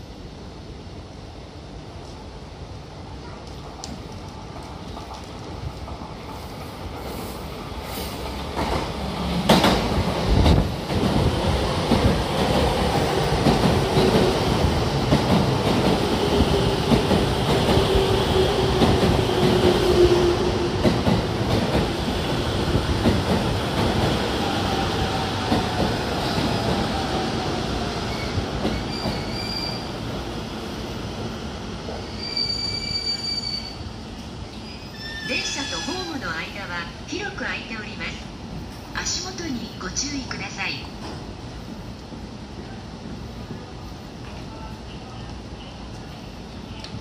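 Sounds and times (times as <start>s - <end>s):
train braking to a stop: 28.0s - 30.0s, 31.9s - 36.3s
high brake squeal: 28.1s - 29.9s, 32.1s - 33.8s, 34.6s - 36.1s.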